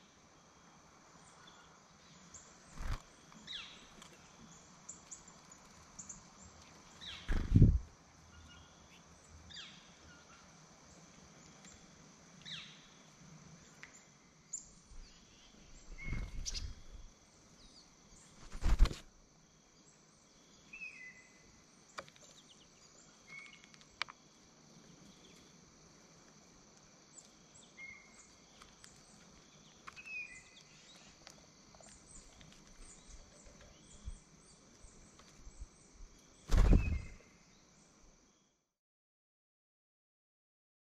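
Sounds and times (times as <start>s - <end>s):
faint high bird calls: 13.8s - 18.8s, 36.4s - 37.4s.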